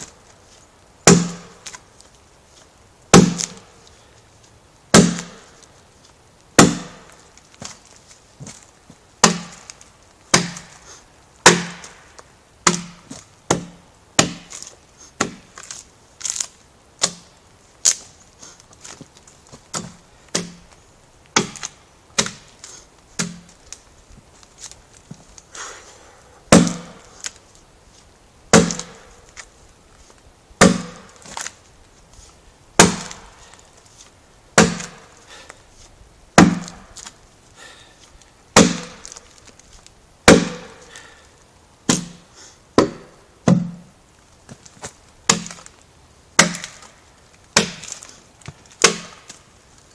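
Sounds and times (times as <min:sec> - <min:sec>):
adze chopping a log: 0:01.0 - 0:01.8, 0:03.1 - 0:03.6, 0:04.9 - 0:05.6, 0:06.6 - 0:07.8, 0:09.2 - 0:10.8, 0:11.4 - 0:12.0, 0:12.6 - 0:17.3, 0:19.7 - 0:20.7, 0:21.4 - 0:22.6, 0:23.2 - 0:23.6, 0:26.5 - 0:27.4, 0:28.5 - 0:29.1, 0:30.6 - 0:31.5, 0:32.8 - 0:33.4, 0:34.6 - 0:35.1, 0:36.4 - 0:37.1, 0:38.6 - 0:39.2, 0:40.3 - 0:41.0, 0:41.9 - 0:43.9, 0:45.3 - 0:45.7, 0:46.4 - 0:46.9, 0:47.6 - 0:48.1, 0:48.7 - 0:49.4.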